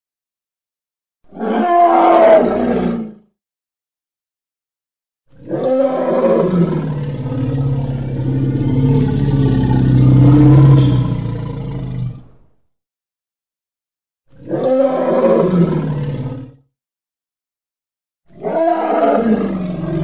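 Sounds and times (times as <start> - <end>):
elephant roaring: 1.3 - 3.2, 5.4 - 12.4, 14.4 - 16.6, 18.3 - 20.0.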